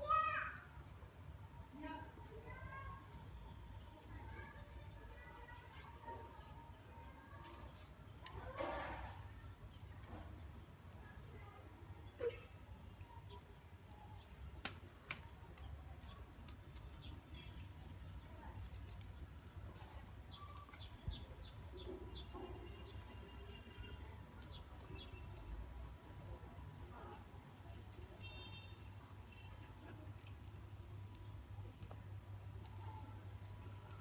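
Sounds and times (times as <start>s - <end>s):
birds chirping: 2.0s - 34.0s
kittens tapping and rustling: 14.6s - 34.0s.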